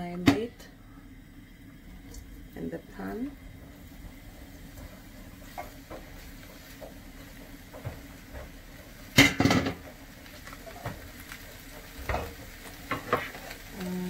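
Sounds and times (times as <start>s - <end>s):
metal cookware clatter: 4.8s - 10.0s, 11.7s - 13.4s.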